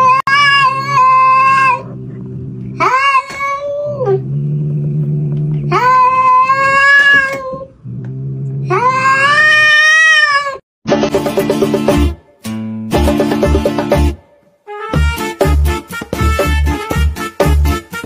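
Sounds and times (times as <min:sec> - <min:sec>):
cat yowling: 0:00.0 - 0:02.0, 0:02.8 - 0:04.2, 0:05.7 - 0:07.7, 0:08.7 - 0:10.6
upbeat background music: 0:10.9 - 0:18.0.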